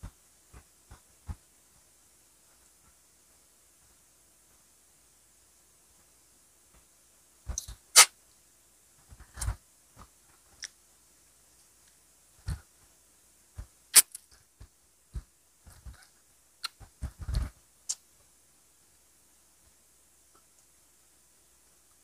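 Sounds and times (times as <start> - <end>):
sharp snaps: 7.5 - 8.2, 13.9 - 14.4.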